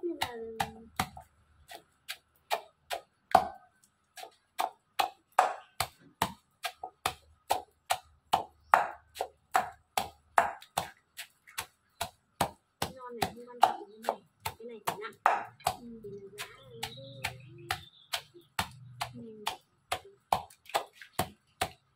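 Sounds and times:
pestle pounding in a ringing bowl: 0:00.0 - 0:21.9.

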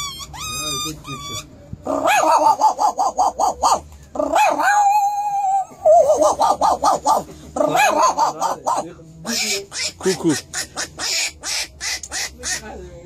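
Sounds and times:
man imitating animal calls: 0:00.0 - 0:12.6.

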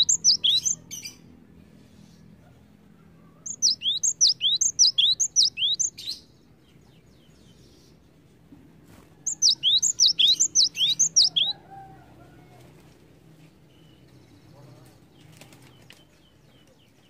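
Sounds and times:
bird singing whistled notes: 0:00.0 - 0:01.2, 0:03.5 - 0:06.3, 0:09.3 - 0:11.6.

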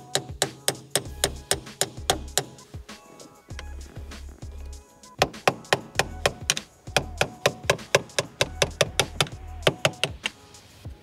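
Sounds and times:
hammer tapping metal: 0:00.0 - 0:02.6, 0:05.2 - 0:10.3.

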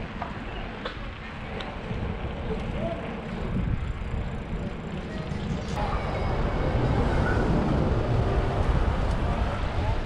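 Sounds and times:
wind on microphone: 0:01.4 - 0:10.0
cars passing close by: 0:05.8 - 0:10.0.

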